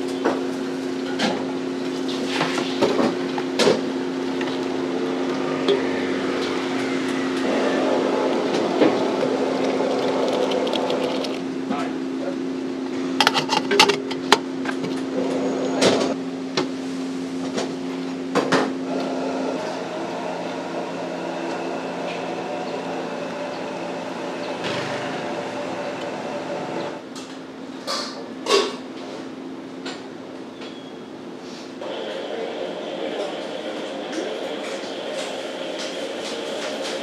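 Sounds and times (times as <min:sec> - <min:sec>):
steady hum: 0:00.0 - 0:27.7
kitchen noise: 0:13.1 - 0:16.2.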